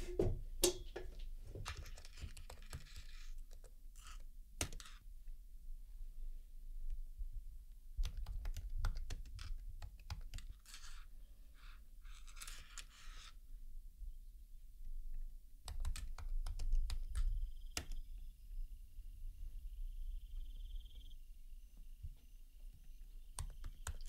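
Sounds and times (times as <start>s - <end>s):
soft scratchy rustle: 1.6s - 4.3s, 10.4s - 13.4s
laptop keyboard key clicks: 15.7s - 18.0s.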